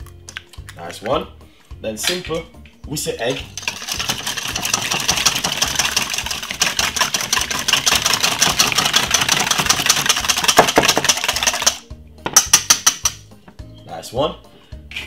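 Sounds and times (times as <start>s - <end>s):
whisk beating eggs in metal bowl: 3.5s - 11.8s.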